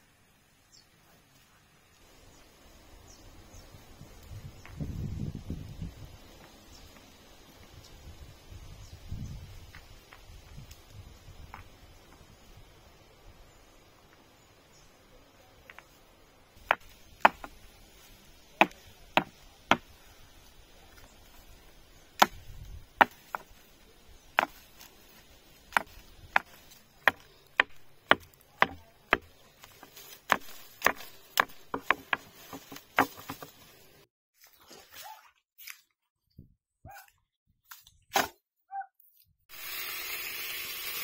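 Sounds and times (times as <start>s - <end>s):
wood being chopped: 16.6s - 17.6s, 18.6s - 20.0s, 22.2s - 23.5s, 24.4s - 24.8s, 25.7s - 33.6s.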